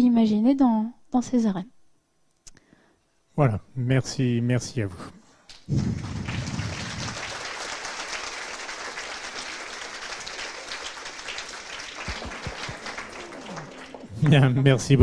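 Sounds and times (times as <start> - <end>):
audience applauding: 5.6 - 14.8.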